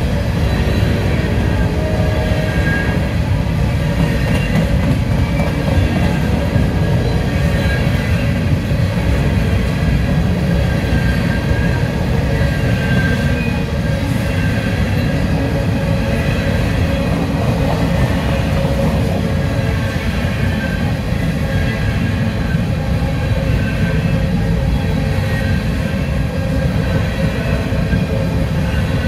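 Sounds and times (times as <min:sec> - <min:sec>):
train wheels rumbling on rail: 0:00.0 - 0:29.0
high-pitched wheel squeals: 0:00.4 - 0:03.2.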